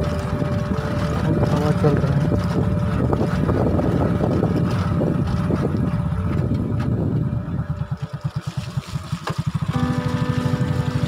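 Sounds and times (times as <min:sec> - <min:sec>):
wind rumble on microphone: 0:00.0 - 0:08.3
engine pulsing at low revs: 0:00.0 - 0:11.0.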